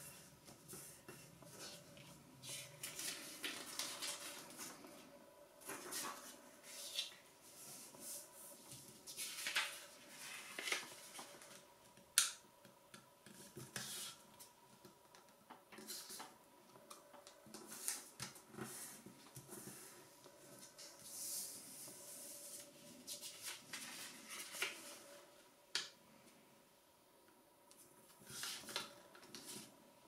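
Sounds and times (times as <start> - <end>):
paper rustling and crinkling: 0.4 - 11.7, 17.5 - 25.2, 28.1 - 29.7.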